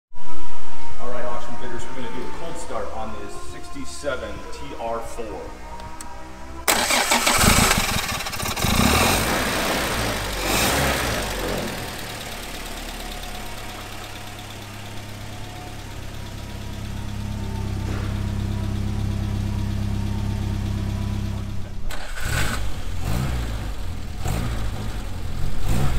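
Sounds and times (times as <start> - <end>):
car engine idling: 2.4 - 25.9
car engine starting and revving: 5.4 - 25.9.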